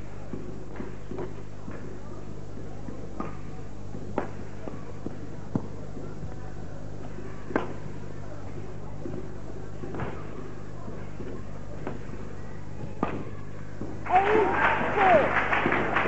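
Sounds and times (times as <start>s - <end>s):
faint hall ambience: 0.0s - 16.0s
racket hitting shuttlecock: 7.1s - 7.9s.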